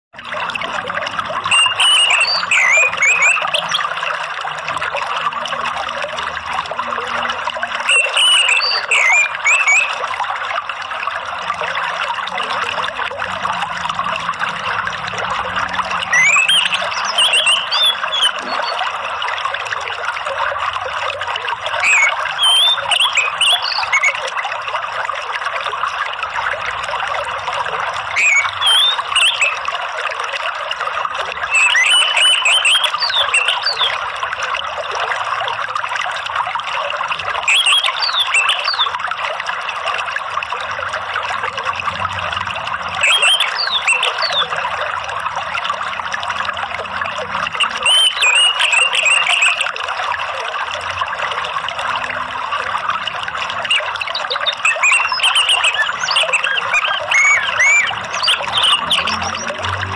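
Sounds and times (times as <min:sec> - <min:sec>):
trickling running water: 0:00.2 - 0:59.9
thrush singing high chirps: 0:01.5 - 0:03.8, 0:07.9 - 0:10.0, 0:16.1 - 0:18.8, 0:21.8 - 0:24.2, 0:28.2 - 0:29.6, 0:31.5 - 0:34.0, 0:37.5 - 0:38.8, 0:43.0 - 0:44.4, 0:47.5 - 0:49.7, 0:53.7 - 0:59.5.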